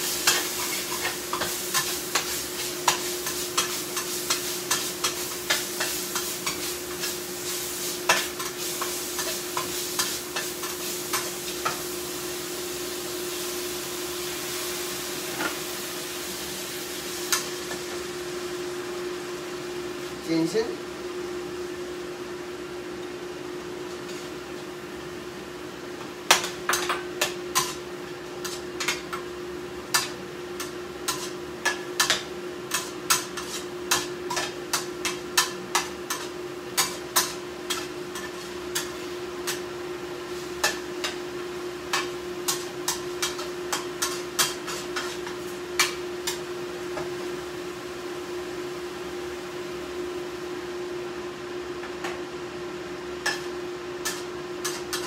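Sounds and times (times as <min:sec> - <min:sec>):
utensils clinking on cookware: 0:53.2 - 0:55.0.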